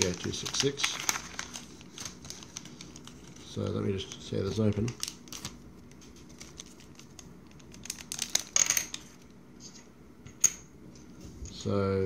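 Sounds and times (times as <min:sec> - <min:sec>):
plastic bag crinkling: 0:00.0 - 0:09.2.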